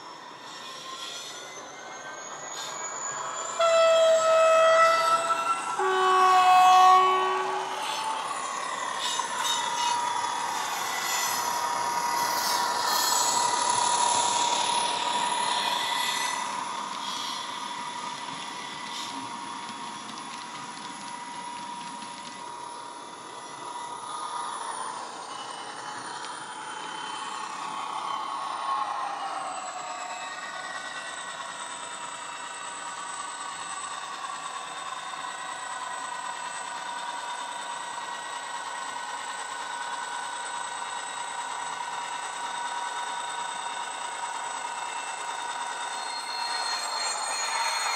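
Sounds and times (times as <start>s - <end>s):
model train horn: 3.5s - 8.2s.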